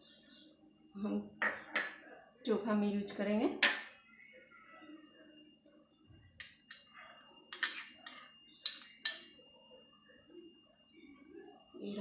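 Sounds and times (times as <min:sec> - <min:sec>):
kitchen utensils clinking: 0:06.4 - 0:06.9, 0:07.5 - 0:09.4.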